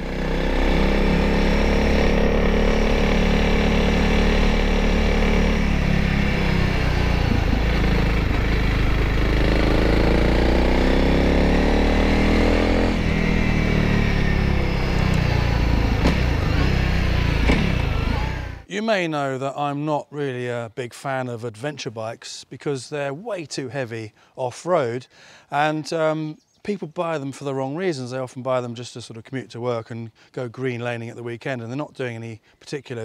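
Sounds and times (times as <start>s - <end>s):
motorcycle engine accelerating: 0.0s - 18.7s.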